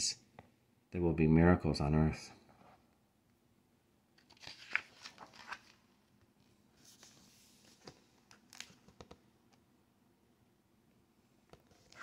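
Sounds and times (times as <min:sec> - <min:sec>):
paper pages rustling: 0:04.2 - 0:09.2, 0:11.5 - 0:12.0.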